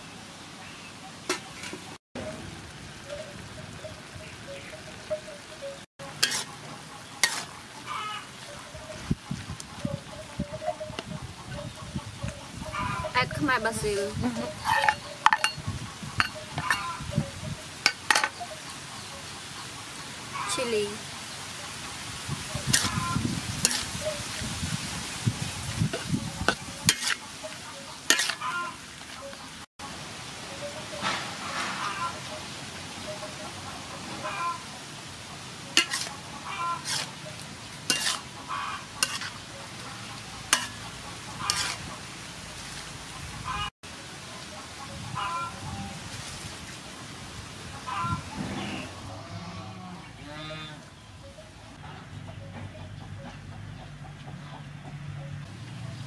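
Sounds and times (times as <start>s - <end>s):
food sizzling in a wok: 1.0s - 9.6s, 12.7s - 33.5s, 34.2s - 48.1s
metal ladle scraping a wok: 6.0s - 7.6s, 14.5s - 17.0s, 17.8s - 18.6s, 22.6s - 24.4s, 25.6s - 29.2s, 35.7s - 42.8s.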